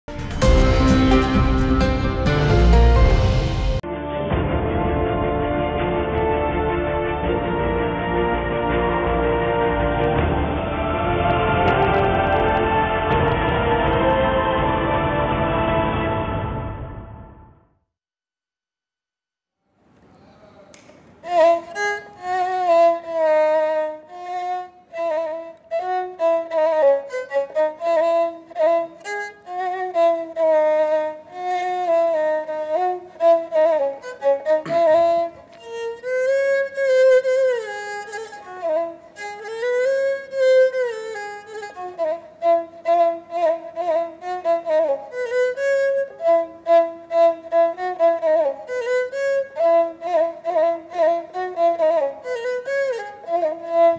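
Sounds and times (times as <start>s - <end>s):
bowed spike fiddle melody: 0.1s - 3.8s, 21.2s - 53.9s.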